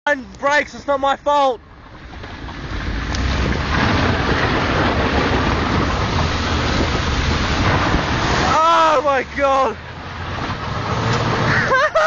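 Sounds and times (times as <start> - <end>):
low engine rumble: 0.1 - 12.0
tyres on gravel: 0.1 - 12.0
wind buffeting microphone: 1.6 - 8.6.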